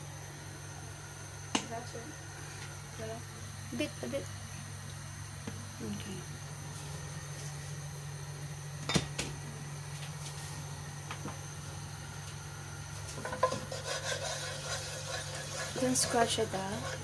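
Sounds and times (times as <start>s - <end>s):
steady low hum: 0.0s - 17.0s
spatula scraping in a wok: 13.2s - 17.0s.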